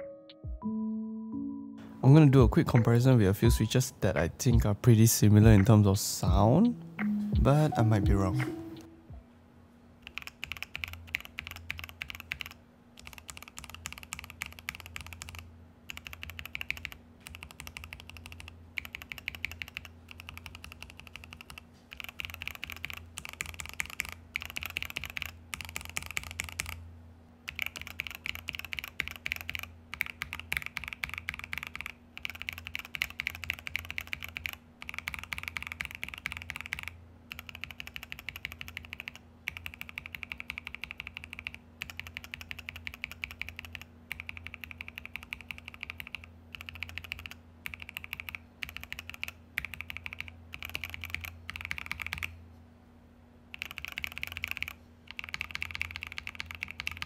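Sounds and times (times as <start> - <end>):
fast mechanical keyboard typing: 10.0 - 26.8, 27.5 - 52.4, 53.5 - 57.0.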